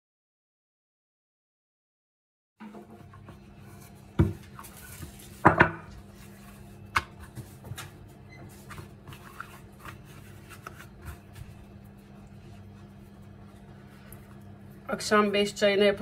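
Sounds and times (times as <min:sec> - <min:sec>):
steady low hum: 0:02.7 - 0:16.0
pastry sheet rustling: 0:03.6 - 0:14.1.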